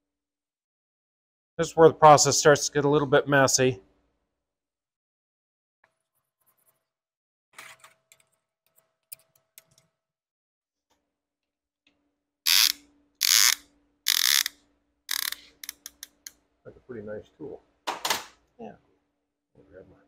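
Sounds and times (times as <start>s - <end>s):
loud ratcheting strokes: 12.5s - 16.3s.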